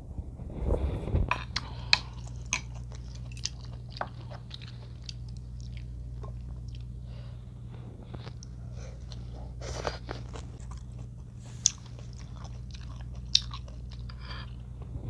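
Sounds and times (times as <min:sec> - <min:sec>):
steady low hum: 0:00.0 - 0:15.0
close chewing with wet mouth clicks: 0:01.6 - 0:06.9, 0:10.3 - 0:14.2.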